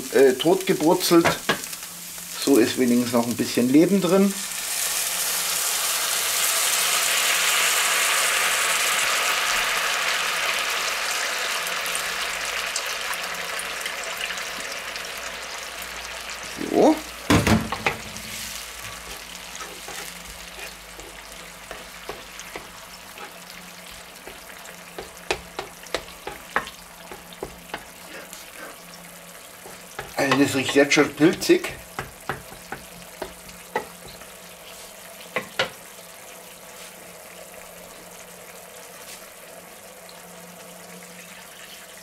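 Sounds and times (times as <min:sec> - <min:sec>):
meat sizzling in a pan: 0:00.0 - 0:42.0
spatula knocking metal bowl: 0:21.7 - 0:22.8, 0:25.0 - 0:27.9, 0:29.7 - 0:34.2.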